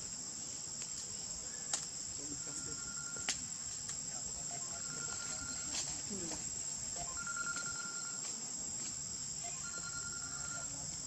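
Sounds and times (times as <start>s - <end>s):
high-pitched insect drone: 2.0s - 3.3s, 4.2s - 11.0s.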